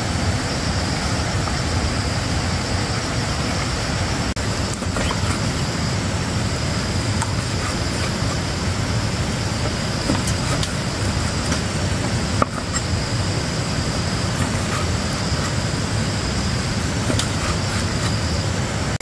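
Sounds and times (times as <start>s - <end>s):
loud steady rushing noise: 0.0s - 19.0s
cleaver slicing meat: 6.6s - 12.8s, 13.9s - 18.3s.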